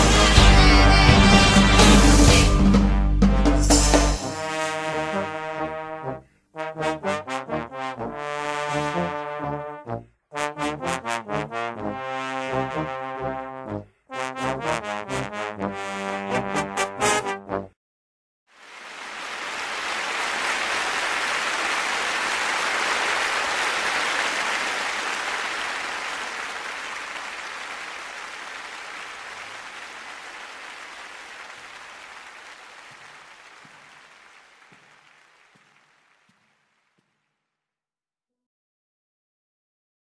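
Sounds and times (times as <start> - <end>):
audience applauding: 18.6 - 37.2.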